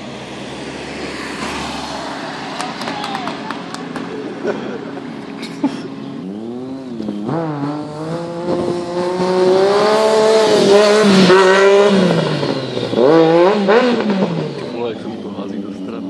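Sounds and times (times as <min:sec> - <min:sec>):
motorcycle engine revving: 0:05.9 - 0:16.0.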